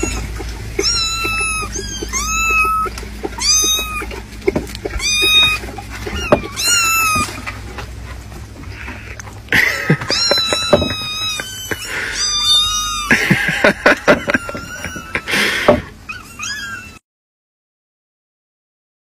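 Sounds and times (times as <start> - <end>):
kittens scrabbling in plastic can: 0.0 - 9.0, 9.8 - 11.6
kittens mewing: 0.0 - 17.0.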